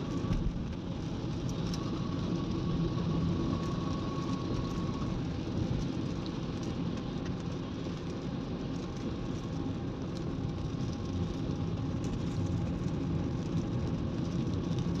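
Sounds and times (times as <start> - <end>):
car engine and road noise: 0.0 - 15.0
tyres on wet road: 0.0 - 15.0.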